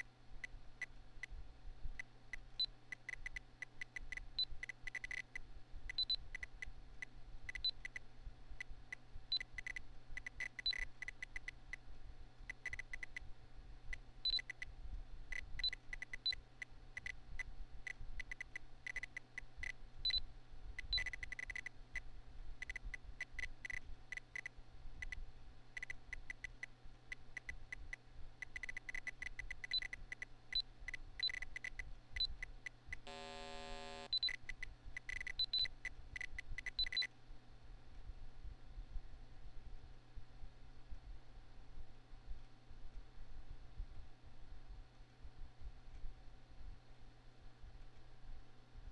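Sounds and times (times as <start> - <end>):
computer fan hum: 0.0 - 48.9
short high computer beeps: 4.9 - 5.3, 6.0 - 6.2, 10.4 - 10.9, 31.2 - 31.4, 33.1 - 34.4, 35.1 - 35.7, 36.8 - 37.1.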